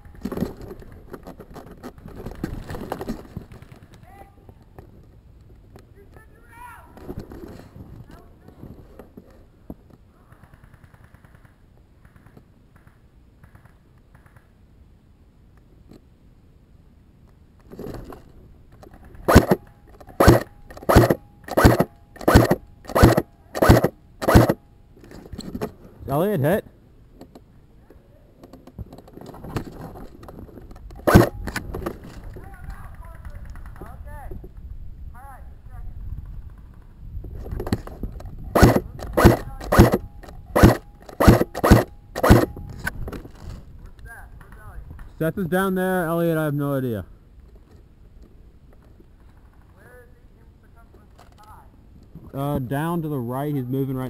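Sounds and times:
sharp crunching thuds: 19.0 - 24.6, 29.3 - 32.3, 37.2 - 43.6
soft rustling: 36.2 - 45.2.

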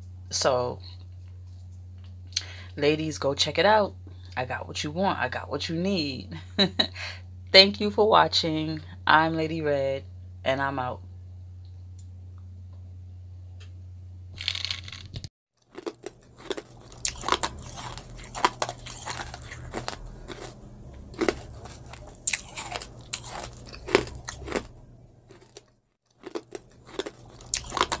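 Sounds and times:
low steady hum: 0.0 - 28.0
chewing and crunching: 15.6 - 28.0.

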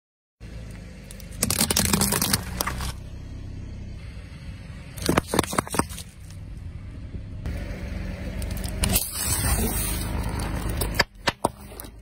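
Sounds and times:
car engine rumble: 0.4 - 12.0
plastic tubs cracking under tyre: 1.1 - 3.0, 5.0 - 6.4.

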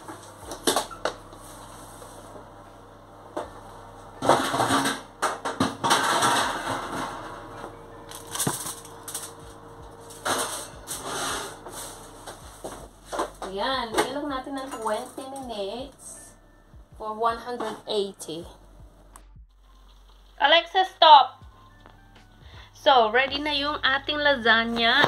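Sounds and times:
baking dish sliding into oven: 10.2 - 12.2.

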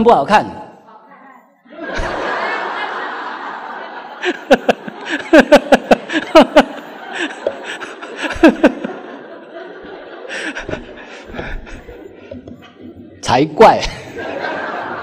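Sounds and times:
person laughing: 4.2 - 9.1.

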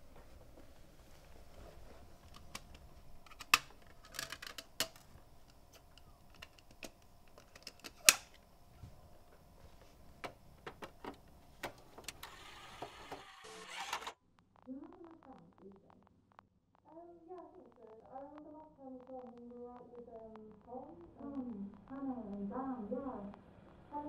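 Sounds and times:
plastic cd case clicks and snaps: 2.2 - 8.4.

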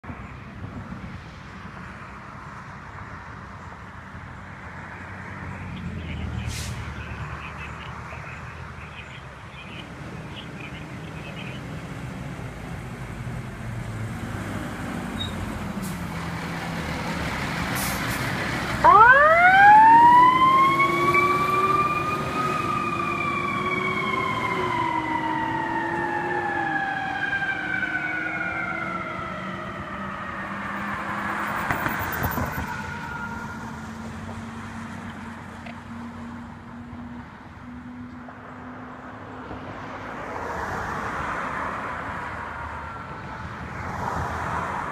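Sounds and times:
road and traffic noise: 0.0 - 44.9
fire engine siren winding: 18.8 - 30.5.

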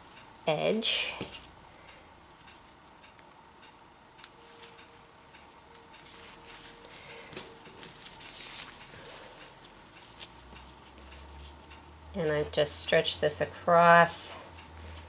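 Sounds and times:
fabric rustling and crinkling: 6.0 - 11.7.

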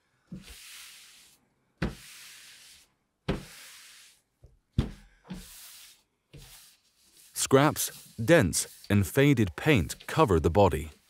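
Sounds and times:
cloth wiping glass: 5.3 - 11.0.

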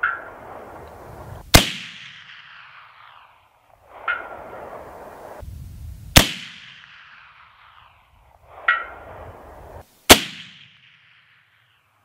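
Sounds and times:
rifle shots echoing: 1.4 - 4.7, 6.2 - 7.9, 10.1 - 11.6.

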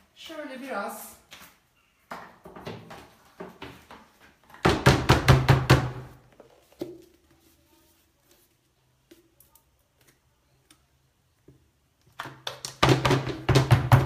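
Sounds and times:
paint roller knocking on plastic tray: 12.8 - 14.0.

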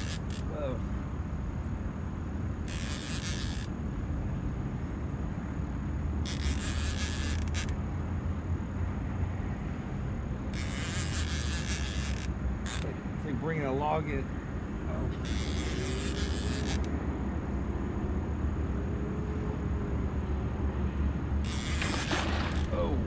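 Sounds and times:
fishing reel buzzing: 0.0 - 0.7, 2.6 - 3.7, 6.2 - 7.8, 10.5 - 13.1, 15.1 - 17.0, 21.4 - 23.0.

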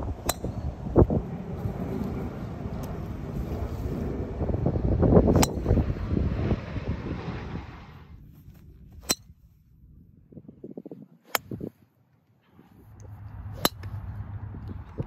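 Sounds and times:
wind noise on microphone: 0.0 - 11.9, 12.6 - 15.0
golf club striking ball: 0.2 - 0.8, 5.3 - 5.8, 13.0 - 14.0.

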